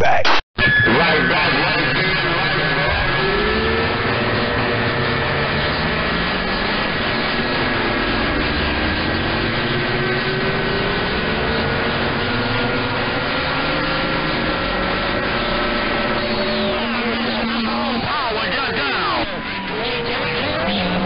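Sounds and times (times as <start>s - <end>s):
radio static hiss: 0.0s - 3.0s
faint radio whistles: 0.6s - 4.6s.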